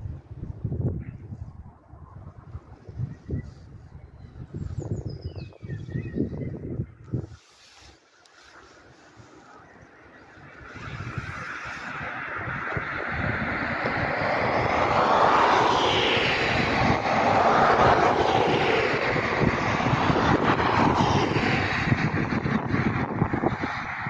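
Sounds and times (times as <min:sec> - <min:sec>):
distant jet engine roar: 0:06.2 - 0:24.0.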